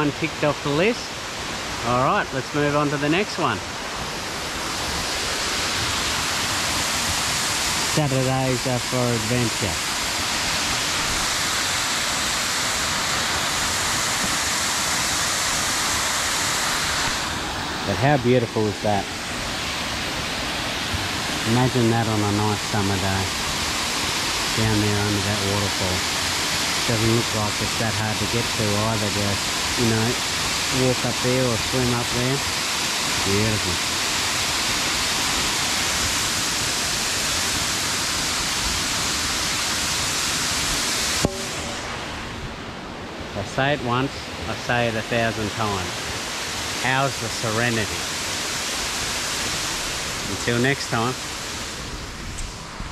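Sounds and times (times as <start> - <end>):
waterfall rushing: 0.0 - 52.9.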